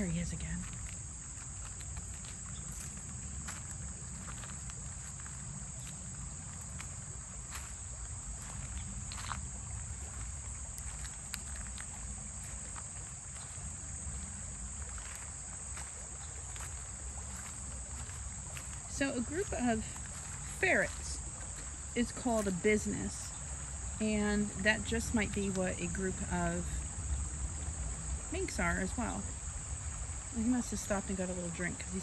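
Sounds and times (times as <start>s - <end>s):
river flowing rumble: 0.0s - 32.0s
faint ticks: 10.1s - 19.0s.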